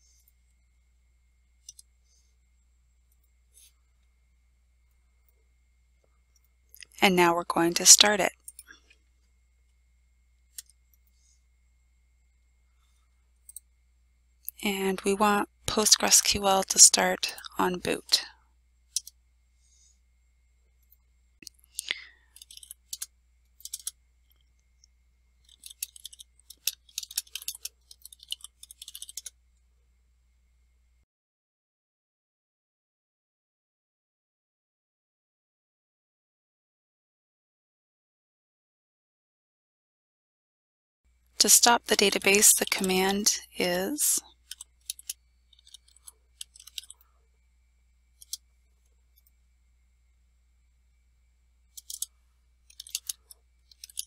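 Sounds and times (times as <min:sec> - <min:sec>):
faint low hum: 0:00.0 - 0:31.1, 0:41.1 - 0:54.0
computer keyboard typing: 0:22.3 - 0:23.9, 0:25.4 - 0:29.4, 0:44.4 - 0:47.0, 0:48.2 - 0:48.4, 0:51.7 - 0:52.1, 0:52.7 - 0:54.0
keyboard keystroke clicks: 0:51.7 - 0:52.1, 0:52.7 - 0:54.0.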